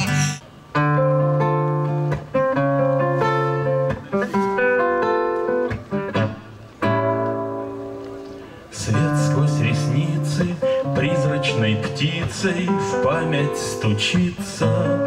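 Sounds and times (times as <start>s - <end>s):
acoustic guitar chords: 0.0s - 15.0s
person singing: 8.7s - 15.0s.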